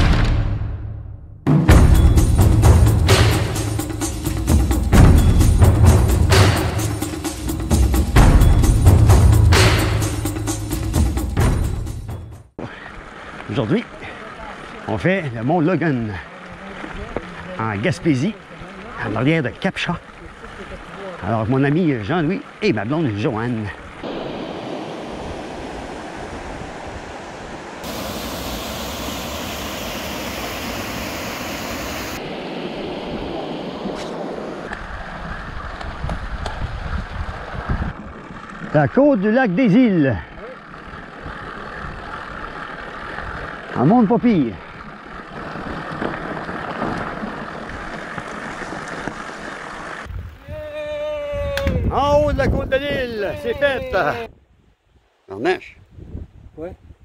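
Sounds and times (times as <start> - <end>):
bike tyres crunching on gravel: 12.7 - 24.1, 40.2 - 50.4
water rushing over rocks: 12.9 - 36.4, 45.2 - 50.1
wind on microphone: 24.0 - 38.4, 45.4 - 54.8, 55.8 - 57.0.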